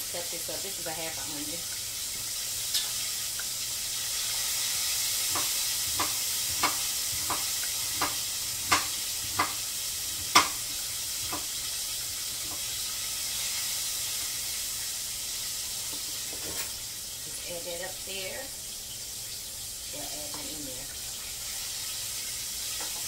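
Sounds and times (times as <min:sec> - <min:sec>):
fish frying in hot oil: 0:00.0 - 0:23.0
knife chopping on wooden board: 0:05.2 - 0:09.6, 0:10.2 - 0:11.5.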